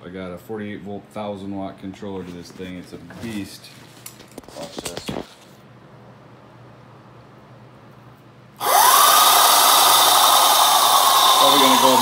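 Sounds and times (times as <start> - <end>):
electric scooter motor whine: 8.6 - 12.0.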